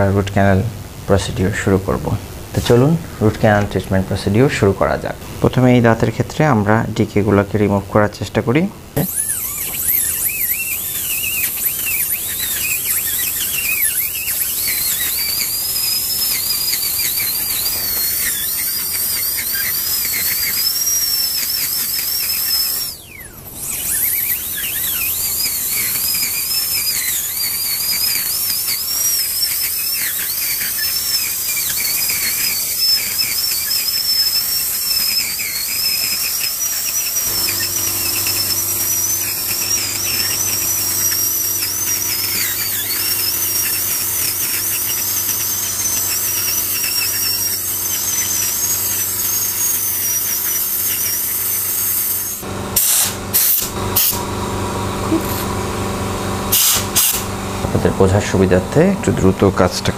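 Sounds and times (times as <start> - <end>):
dental drill whining: 8.8 - 59.9
hiss: 23.7 - 54.2, 56.5 - 57.3.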